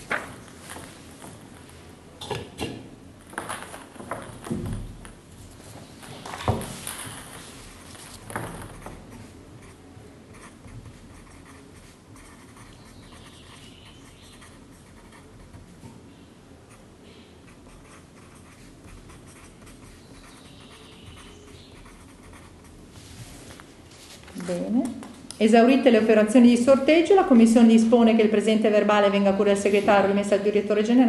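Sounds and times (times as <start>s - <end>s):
pen scratching on paper: 8.9s - 15.7s, 17.5s - 22.7s.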